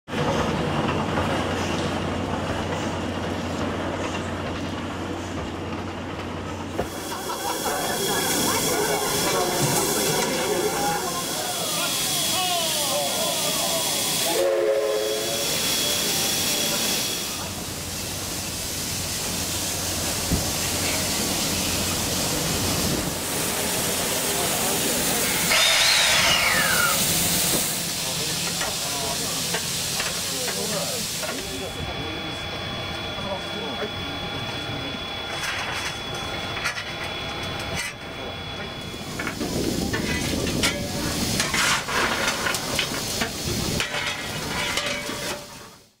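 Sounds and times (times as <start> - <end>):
steam hissing: 6.6 - 46.0
coal shovel scraping and clanking: 41.4 - 42.9, 43.8 - 45.7.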